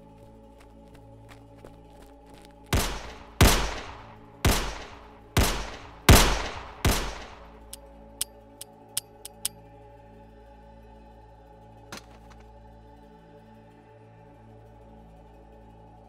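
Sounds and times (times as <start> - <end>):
echoing pistol shots: 2.8 - 7.8
light clicks: 7.2 - 9.5.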